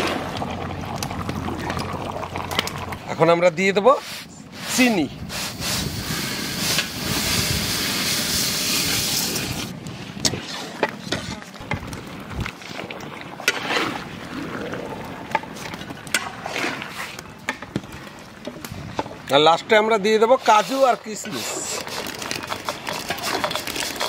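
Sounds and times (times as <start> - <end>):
metal spatula scraping a pan: 20.4 - 24.0
sugar pouring into liquid: 21.4 - 24.0.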